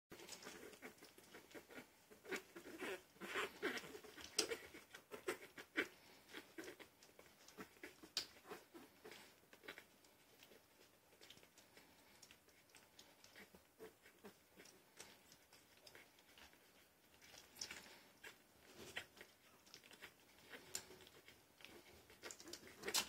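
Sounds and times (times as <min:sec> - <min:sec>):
puppies suckling: 0:00.1 - 0:23.0
puppy squeaks: 0:00.4 - 0:09.8.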